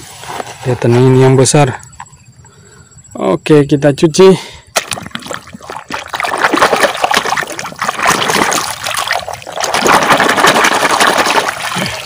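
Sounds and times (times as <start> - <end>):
muddy water sloshing: 4.8 - 12.0.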